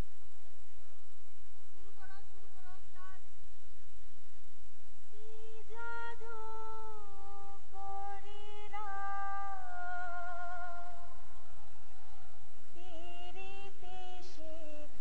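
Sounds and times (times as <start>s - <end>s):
woman singing: 1.8s - 3.4s, 5.1s - 12.0s, 12.7s - 15.0s.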